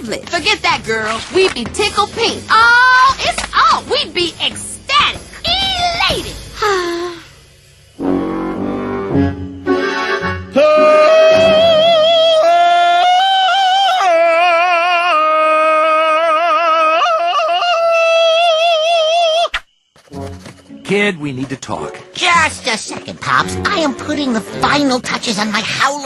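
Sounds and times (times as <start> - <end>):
instrumental music cue: 7.4 - 11.9
cartoon character singing operatic note: 10.6 - 14.1.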